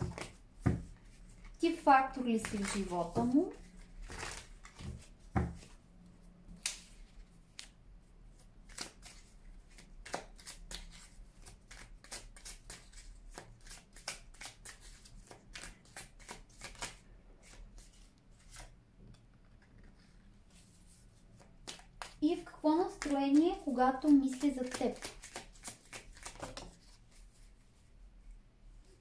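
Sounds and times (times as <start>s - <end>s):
cards being shuffled: 0.0s - 1.6s, 2.3s - 5.7s, 8.6s - 18.7s, 19.6s - 27.5s.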